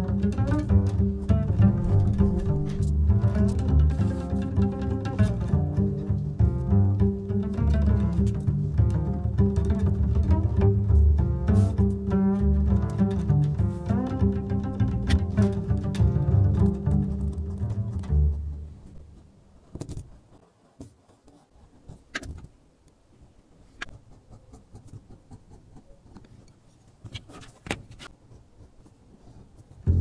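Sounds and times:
low-pitched background music: 0.0s - 18.9s.

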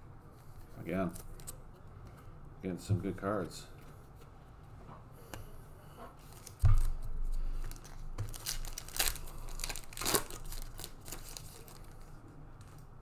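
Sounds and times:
foil wrapper tearing and crinkling: 7.6s - 12.0s.

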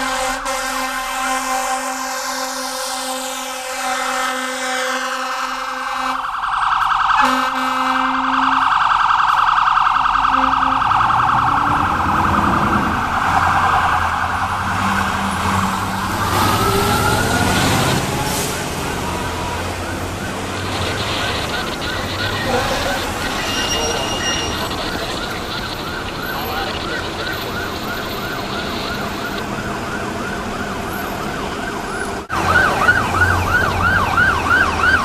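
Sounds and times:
fire engine horn blasts: 0.0s - 11.4s, 14.7s - 29.8s
fire engine rumble: 0.0s - 35.0s
warbling siren: 0.2s - 35.0s.

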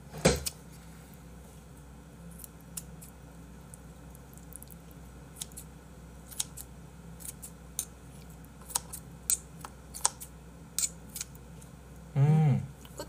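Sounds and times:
faint steady hum: 0.0s - 13.0s
scissors snipping squid: 6.3s - 7.9s.

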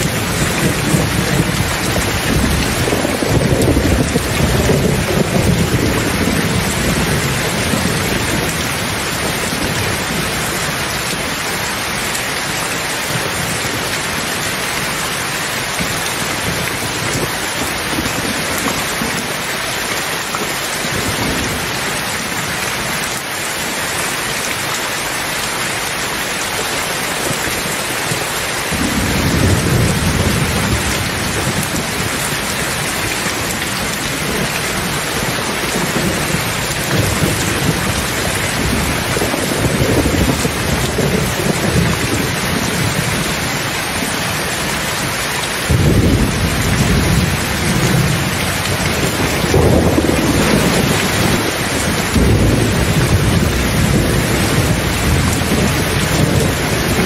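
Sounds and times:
rolling thunder: 0.0s - 10.5s, 28.7s - 43.4s, 45.6s - 57.0s
heavy rain: 0.0s - 57.0s.

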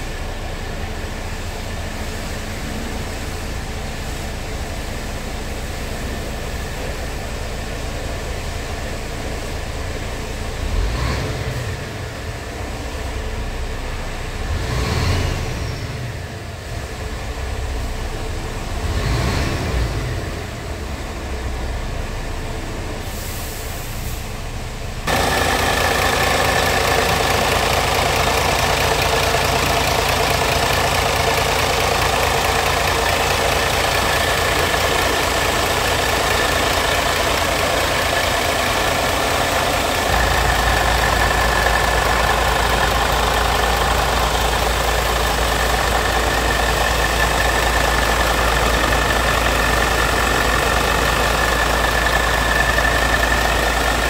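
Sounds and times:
diesel engine idling: 0.0s - 54.0s
steady high whine: 24.8s - 54.0s.

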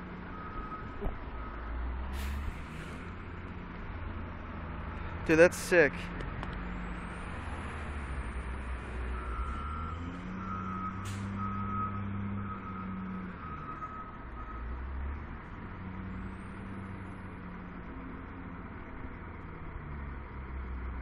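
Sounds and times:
loader diesel engine working: 0.0s - 21.0s
reversing alarm beeping: 0.3s - 1.6s, 9.1s - 14.8s.

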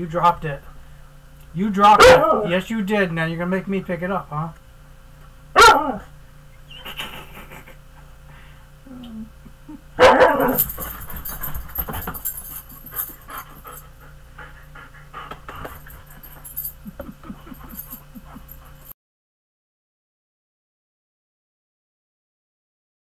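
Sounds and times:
dog howling call: 2.0s - 2.6s, 5.6s - 6.1s, 10.0s - 10.6s
dog panting: 10.4s - 18.9s.

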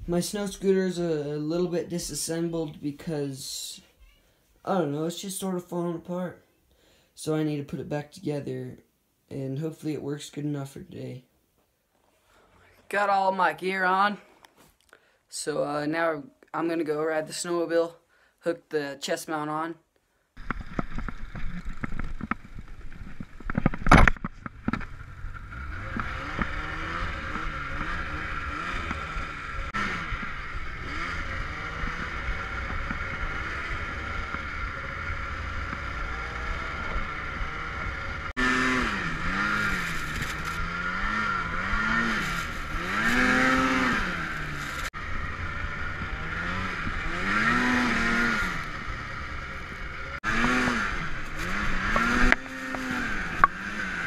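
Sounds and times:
snowmobile engine revving: 24.9s - 54.0s.

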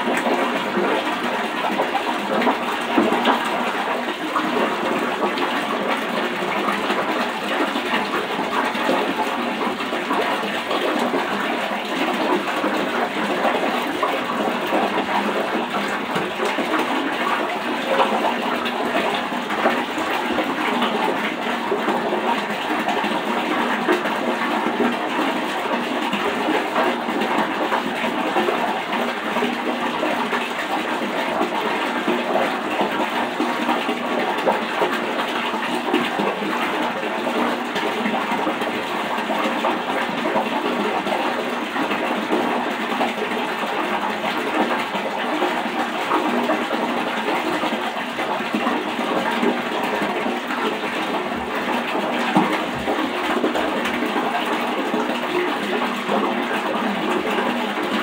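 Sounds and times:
tap water running into sink: 0.0s - 58.0s.

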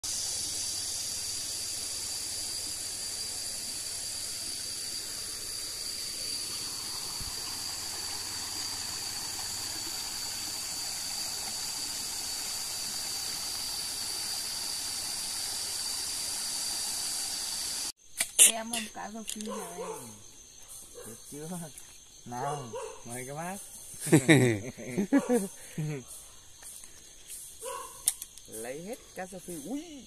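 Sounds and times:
stream trickling over rocks: 0.0s - 17.9s.

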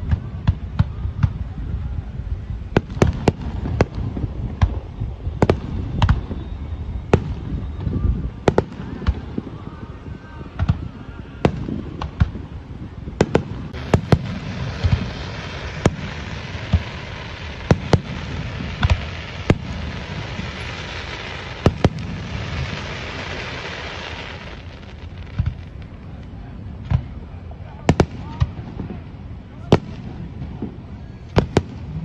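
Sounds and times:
fireworks bangs: 0.0s - 32.0s
steady hiss: 0.8s - 32.0s.

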